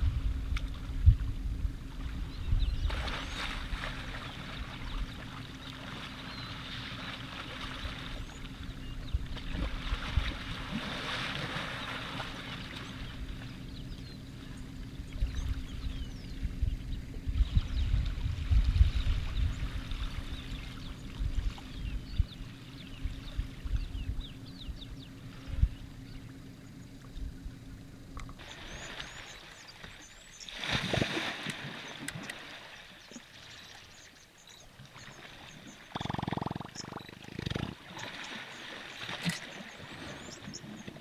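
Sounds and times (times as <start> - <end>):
low rumble: 0.0 - 11.0, 12.1 - 28.9
steady low hum: 0.0 - 41.0
water sloshing and splashing: 2.8 - 15.8, 25.2 - 41.0.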